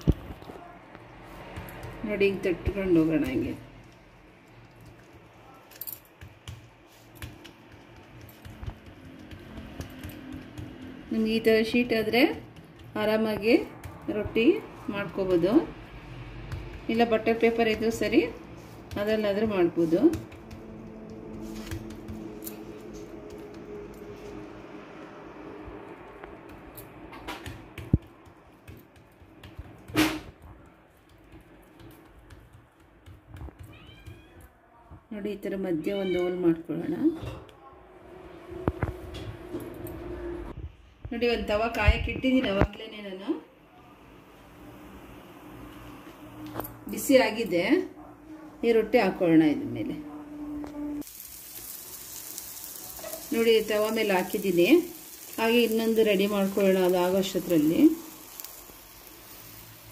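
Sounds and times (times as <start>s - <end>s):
fingers patting dough: 1.2s - 5.4s, 6.1s - 22.4s, 26.1s - 34.3s.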